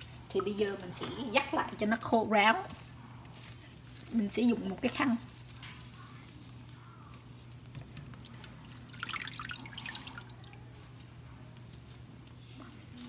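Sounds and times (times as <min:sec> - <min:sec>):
water trickling and dripping: 0:08.2 - 0:10.8.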